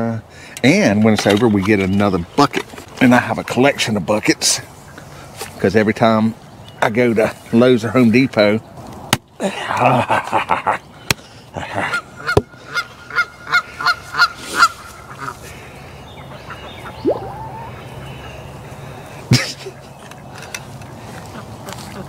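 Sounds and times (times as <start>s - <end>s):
goose honking: 16.4s - 18.0s.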